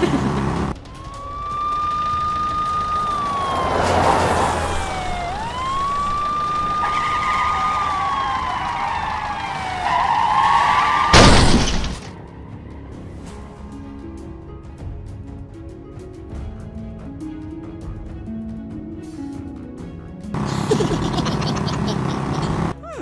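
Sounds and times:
police siren wailing: 0.4s - 11.2s.

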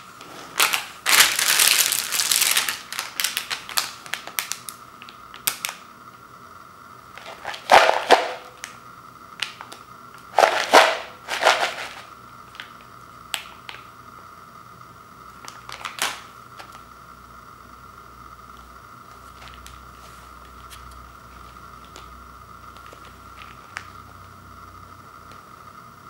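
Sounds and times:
snack bag crinkling: 0.2s - 5.8s, 7.1s - 8.8s, 9.4s - 13.9s, 15.4s - 16.8s, 20.4s - 22.1s, 22.7s - 24.2s
pretzels rattling in plastic bowl: 0.6s - 4.8s, 7.2s - 8.6s, 10.3s - 12.1s.

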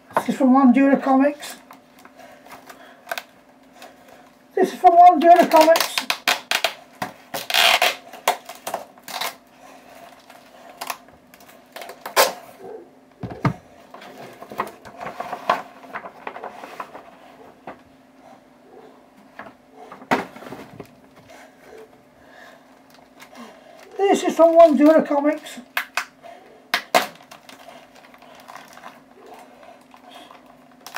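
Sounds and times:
cardboard packaging rustling: 13.2s - 17.9s, 26.9s - 30.9s.

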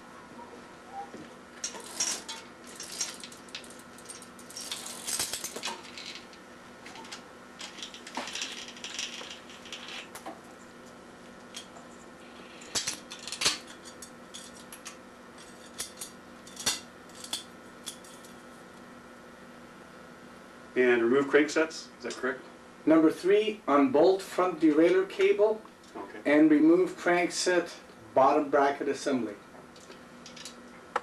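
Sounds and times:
bicycle chain clinking and rattling: 1.6s - 6.4s, 7.0s - 10.2s, 12.3s - 18.3s.

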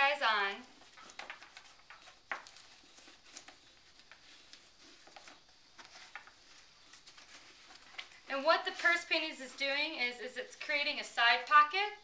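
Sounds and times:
lace fabric rustling: 0.0s - 12.0s.

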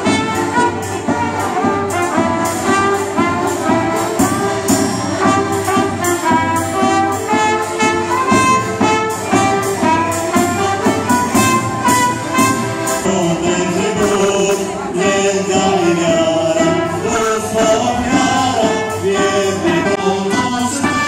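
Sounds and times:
folk band playing: 0.0s - 21.0s
steady drumbeat: 0.0s - 21.0s
voices singing: 12.4s - 21.0s.

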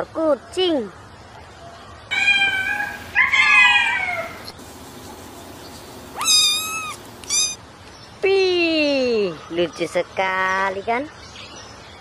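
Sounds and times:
kitten meowing: 2.1s - 4.5s, 6.2s - 7.6s.

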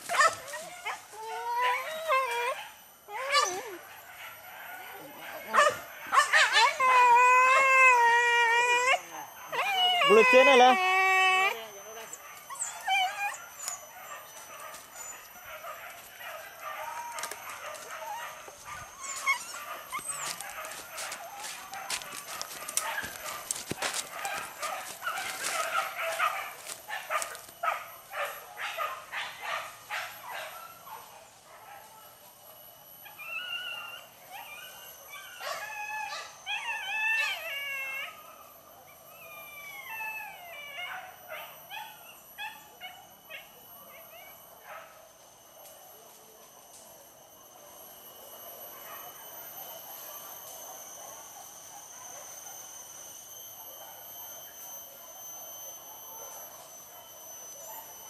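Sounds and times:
dogs yelping and whining: 0.0s - 32.0s, 33.0s - 44.9s
undergrowth snapping and rustling: 17.0s - 18.0s, 19.9s - 27.5s.

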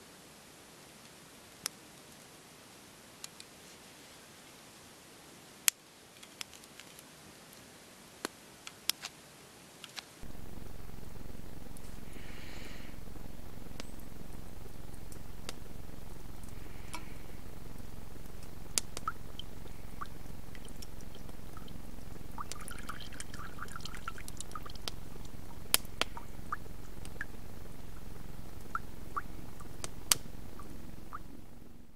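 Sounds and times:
steady low hiss: 0.0s - 31.9s
sharp clicks: 10.2s - 31.6s
water pouring: 10.2s - 31.8s
water dripping: 10.2s - 31.9s.

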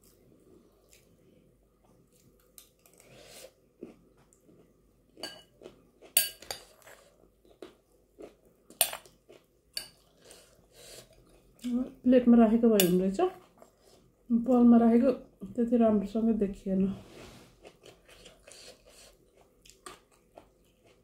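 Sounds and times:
soft chewing: 0.0s - 12.0s, 13.2s - 14.7s, 17.1s - 21.0s.

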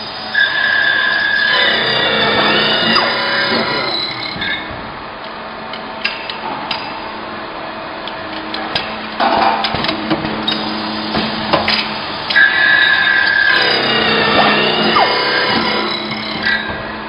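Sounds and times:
machining machine running: 0.0s - 5.7s, 9.9s - 17.0s.

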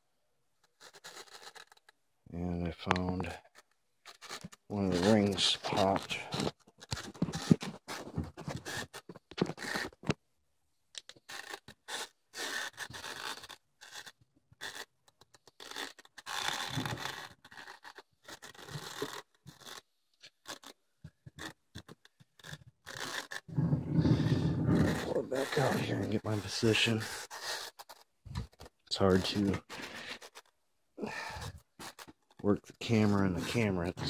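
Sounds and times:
cable scraping and rubbing: 0.6s - 2.0s, 2.7s - 10.2s, 11.0s - 34.0s.

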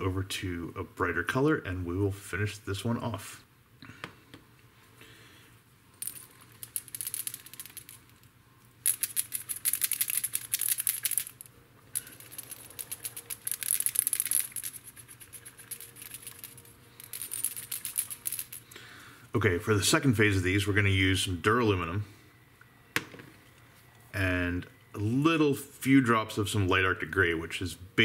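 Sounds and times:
paint bottle ball rattling: 6.0s - 18.8s.

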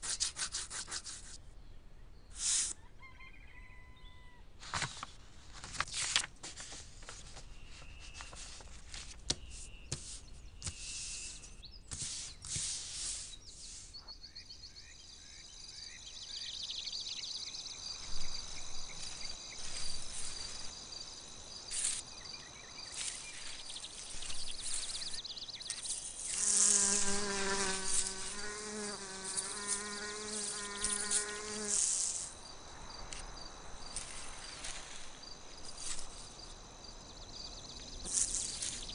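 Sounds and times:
high thin insect trill: 17.8s - 38.9s
bee buzzing: 24.5s - 32.4s.

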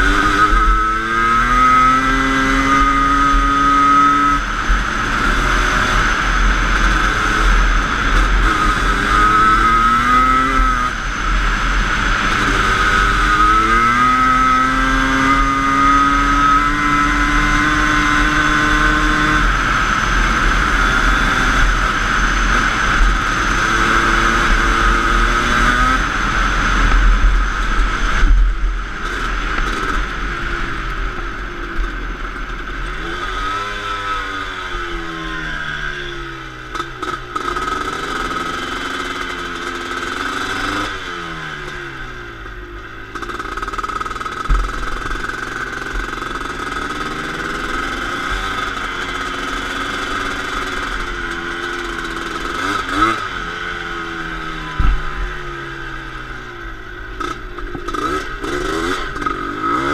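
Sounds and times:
two-stroke engine revving: 0.0s - 59.9s.

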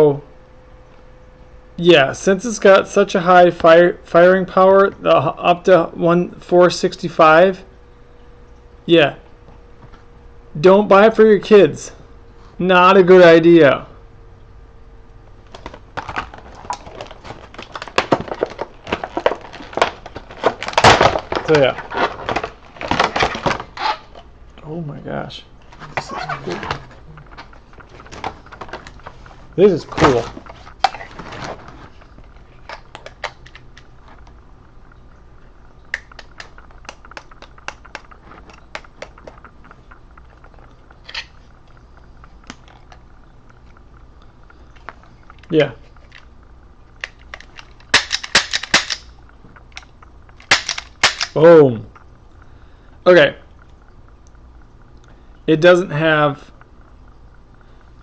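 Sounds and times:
plastic packaging crinkling: 15.5s - 24.2s
air pistol rattle: 47.0s - 51.4s.

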